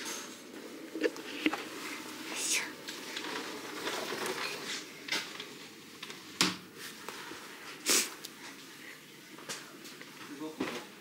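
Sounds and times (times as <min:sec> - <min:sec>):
rustling: 0:01.0 - 0:08.7.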